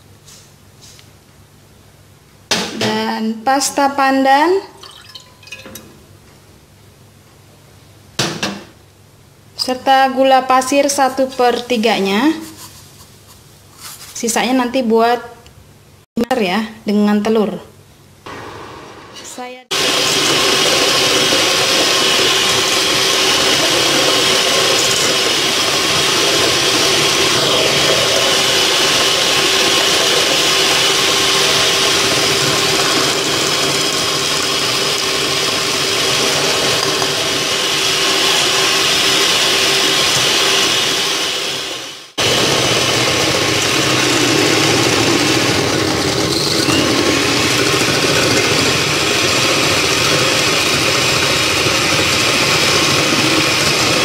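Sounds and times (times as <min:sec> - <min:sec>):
electric hand mixer whisking: 0:19.7 - 0:54.0.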